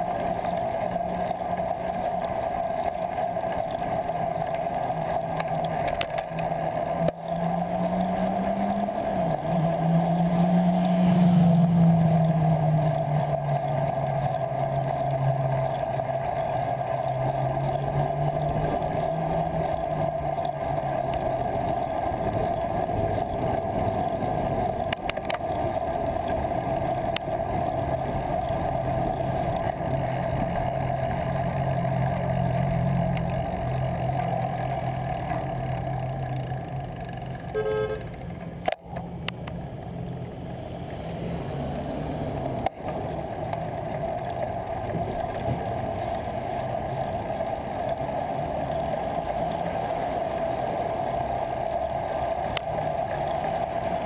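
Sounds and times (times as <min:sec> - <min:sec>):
vehicle engines rumbling: 0:00.0 - 0:54.0
wind and road noise: 0:00.0 - 0:54.0
car horn toot: 0:37.5 - 0:38.2.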